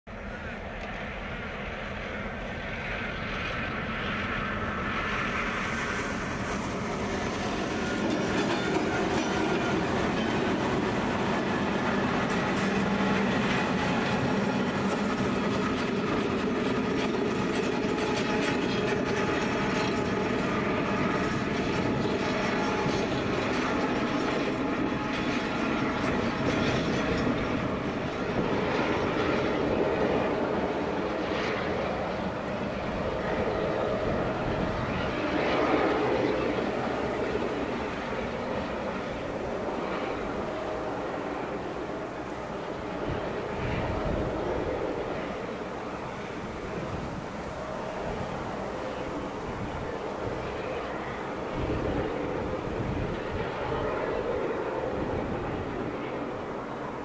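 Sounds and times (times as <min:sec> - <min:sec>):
train wheels rumbling on track: 0:00.1 - 0:33.4
diesel locomotive engines: 0:00.1 - 0:57.0.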